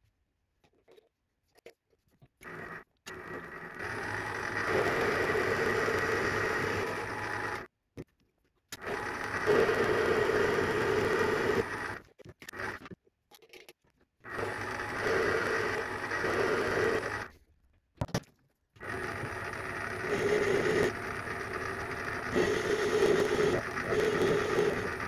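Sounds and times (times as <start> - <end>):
metal lathe cutting: 14.3 - 17.3, 18.8 - 25.0.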